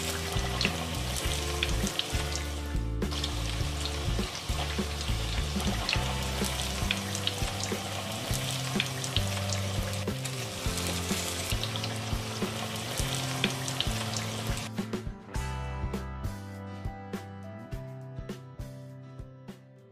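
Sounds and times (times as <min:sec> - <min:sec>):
food deep-frying in oil: 0:00.0 - 0:14.7
background music: 0:00.0 - 0:19.9.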